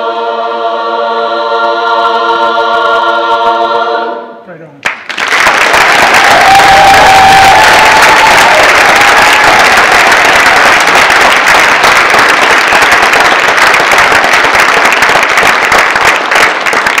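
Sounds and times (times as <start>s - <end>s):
audience applauding: 4.8s - 17.0s.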